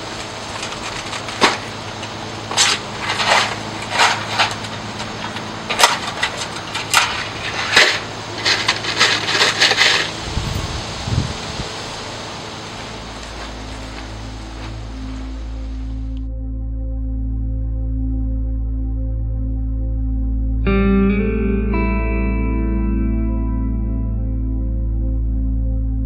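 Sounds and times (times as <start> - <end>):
plastic packages rattling: 0.0 - 10.2
cardboard rustling: 0.0 - 10.3, 12.7 - 16.0.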